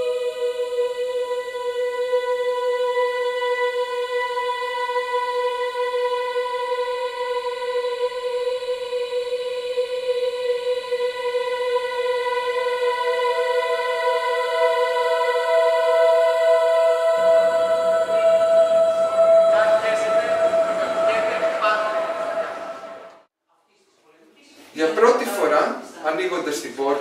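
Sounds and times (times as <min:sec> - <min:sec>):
low sustained drone notes: 0:00.0 - 0:23.3
higher held note: 0:12.8 - 0:23.3.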